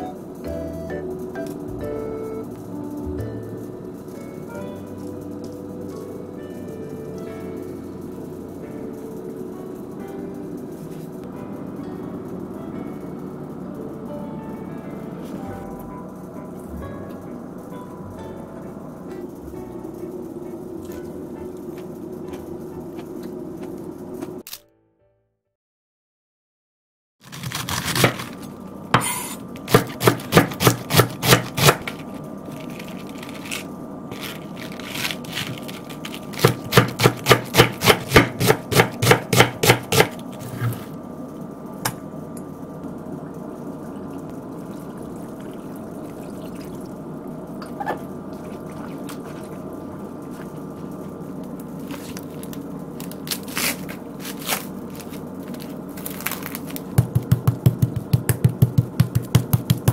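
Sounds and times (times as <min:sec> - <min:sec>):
steady low hum: 0:00.0 - 0:24.4, 0:27.4 - 0:59.9
knife chopping cabbage on board: 0:27.3 - 0:28.4, 0:29.0 - 0:32.0, 0:36.3 - 0:40.8, 0:57.0 - 0:59.9.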